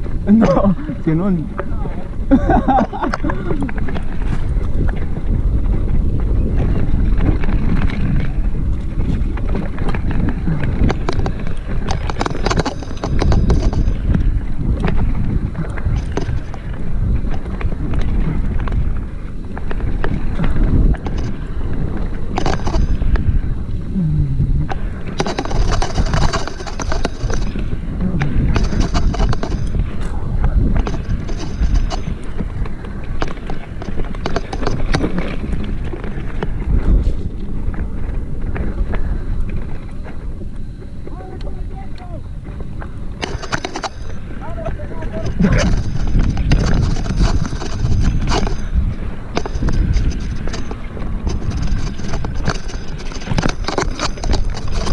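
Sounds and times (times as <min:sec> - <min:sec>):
bike rattling over bumpy ground: 0:00.0 - 0:54.9
wind buffeting microphone: 0:00.0 - 0:54.9
small clicks and knocks: 0:09.4 - 0:15.0, 0:22.3 - 0:23.3, 0:24.7 - 0:27.6, 0:28.2 - 0:30.1, 0:30.8 - 0:36.6, 0:43.2 - 0:44.3, 0:49.3 - 0:54.9.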